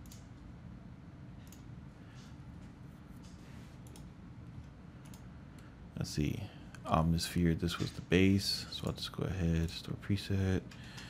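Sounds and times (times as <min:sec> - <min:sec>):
computer mouse clicks: 0:00.0 - 0:00.3, 0:01.4 - 0:01.7, 0:03.2 - 0:04.1, 0:05.0 - 0:05.7
low steady hum: 0:00.0 - 0:11.0.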